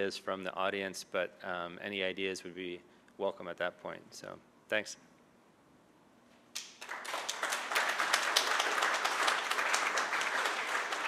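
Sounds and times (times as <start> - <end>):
audience applauding: 6.6 - 11.0.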